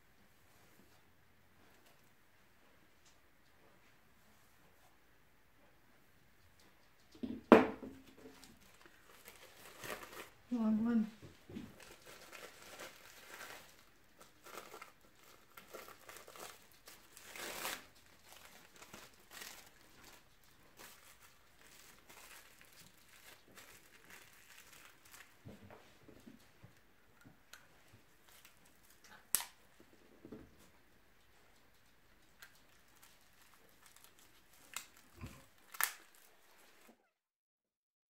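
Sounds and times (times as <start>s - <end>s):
paper crinkling and rustling: 8.1s - 10.4s, 11.3s - 25.6s, 28.2s - 29.0s, 32.4s - 37.0s.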